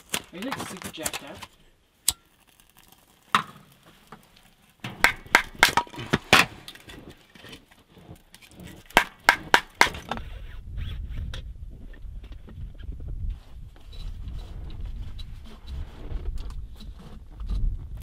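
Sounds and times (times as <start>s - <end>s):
hatchet splitting wood: 4.8s - 7.0s, 8.6s - 10.2s.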